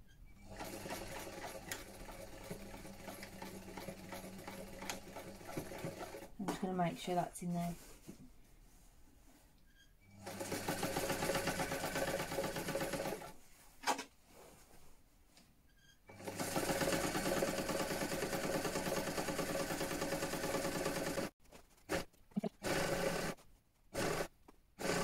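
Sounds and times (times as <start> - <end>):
sewing machine stitching: 0.4 - 6.3, 10.2 - 13.4, 16.1 - 21.3, 21.9 - 23.4, 24.0 - 25.0.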